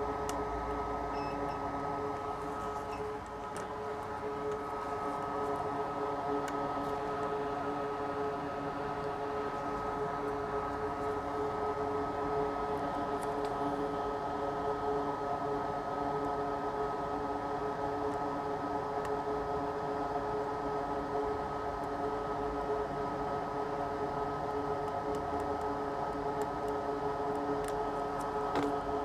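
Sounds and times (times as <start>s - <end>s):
electric fan motor hum: 0.0s - 29.0s.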